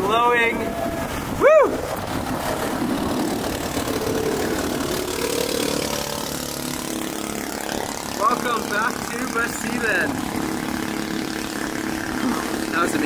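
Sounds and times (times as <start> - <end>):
speedboat engine running: 0.0 - 13.0
water and wind noise: 0.0 - 13.0
person whooping: 0.7 - 1.9.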